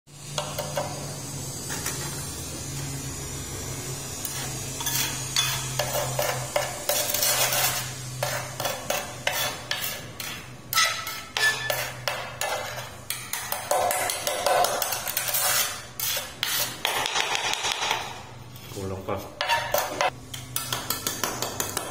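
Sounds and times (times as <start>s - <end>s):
trowel scraping grout on tiles: 4.2s - 18.1s, 18.7s - 20.2s.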